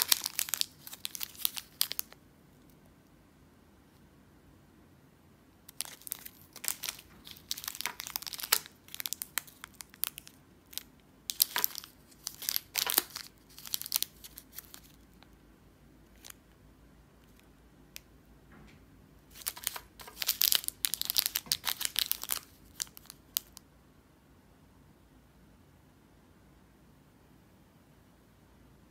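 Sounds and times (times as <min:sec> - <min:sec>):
candy wrappers crinkling: 0:00.0 - 0:02.2, 0:05.7 - 0:15.3, 0:16.1 - 0:16.4, 0:19.3 - 0:23.6.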